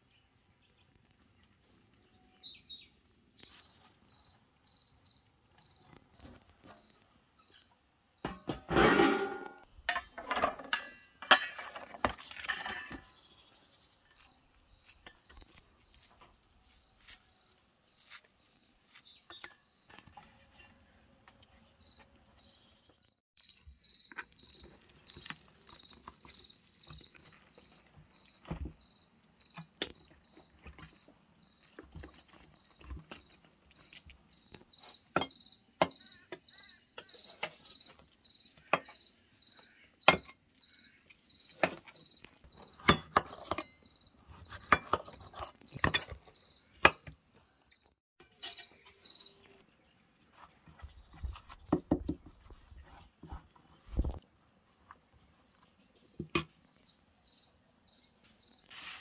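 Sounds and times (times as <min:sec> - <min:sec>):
cricket chirping: 0:03.5 - 0:07.6, 0:23.4 - 0:49.6, 0:55.4 - 0:58.9.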